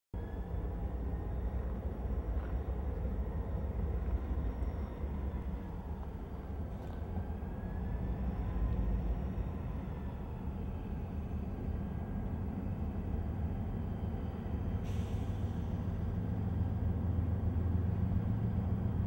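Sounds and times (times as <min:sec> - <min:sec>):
faint whine: 0:00.2 - 0:13.3
locomotive engine rumble: 0:00.2 - 0:19.0.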